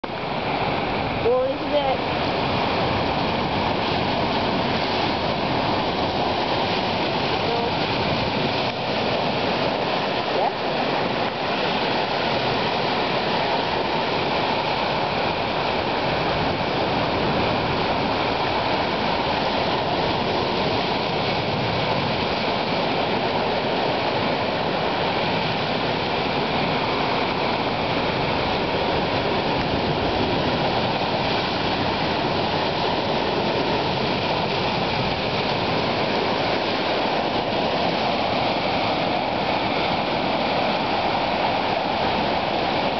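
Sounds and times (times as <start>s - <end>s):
surf rushing between rocks: 0.0s - 42.9s.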